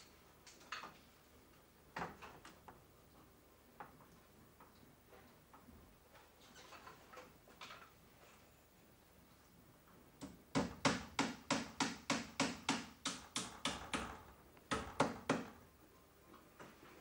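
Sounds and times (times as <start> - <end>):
hammer striking nails into wood: 10.2 - 15.6.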